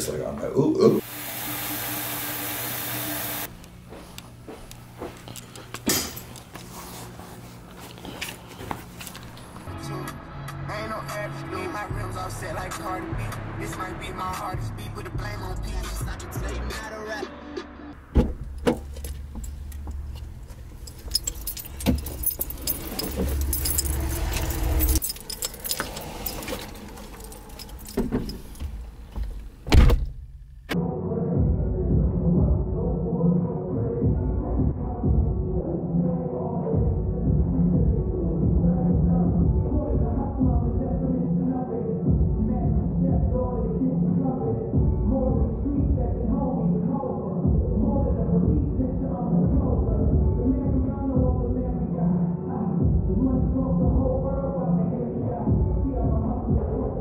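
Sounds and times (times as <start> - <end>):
backpack rattling and clicking: 18.3 - 29.6
keys jangling: 18.4 - 29.6.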